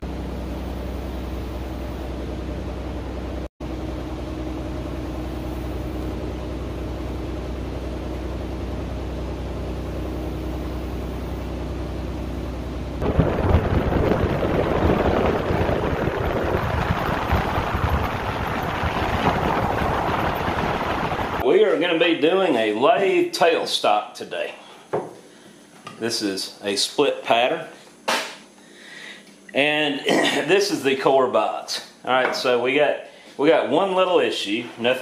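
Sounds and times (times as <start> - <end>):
low machine hum: 0.0 - 35.0
vehicle road noise: 12.8 - 21.4
wind buffeting microphone: 13.0 - 21.4.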